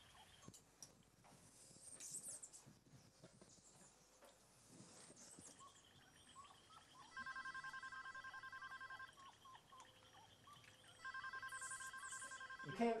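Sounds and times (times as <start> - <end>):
faint chirping: 5.0 - 13.0
electronic telephone ringing: 6.4 - 13.0.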